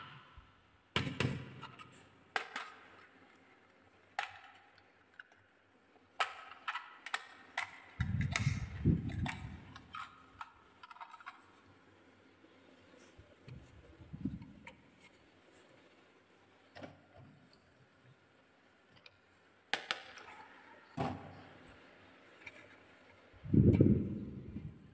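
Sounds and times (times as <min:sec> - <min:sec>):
toy truck clicking and knocking: 0:01.6 - 0:03.1, 0:04.1 - 0:05.4, 0:06.1 - 0:11.6.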